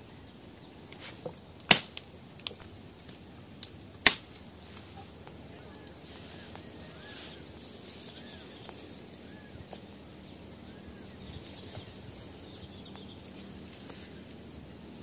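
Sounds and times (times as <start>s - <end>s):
branches snapping and rustling: 0.9s - 8.9s
insects hissing: 5.9s - 15.0s.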